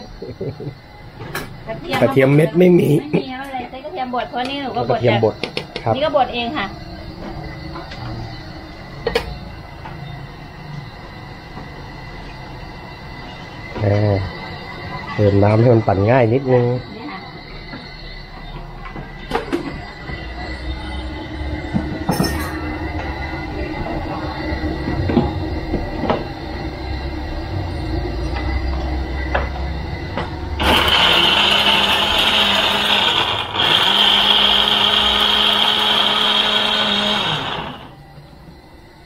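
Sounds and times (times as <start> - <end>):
low hum: 18.9 - 39.0
blender whining: 30.6 - 38.0.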